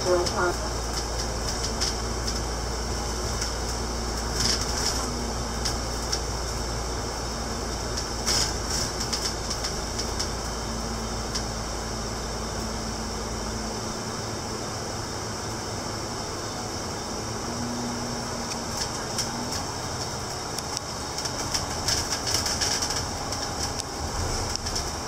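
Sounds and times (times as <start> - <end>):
bus body rattles: 0.0 - 10.6, 18.4 - 25.0
air-conditioning: 0.0 - 25.0
bus engine hum: 0.0 - 25.0.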